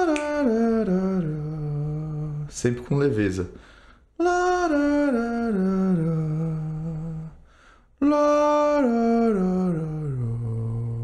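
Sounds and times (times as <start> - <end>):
man singing vocal scales: 0.0 - 3.6, 4.2 - 7.4, 8.0 - 11.0
quick breath: 3.6 - 4.1, 7.4 - 8.0.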